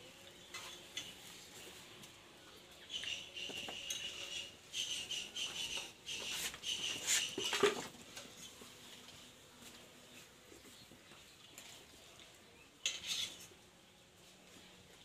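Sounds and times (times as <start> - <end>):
pot scraping and clinking on bowls: 12.8 - 13.5.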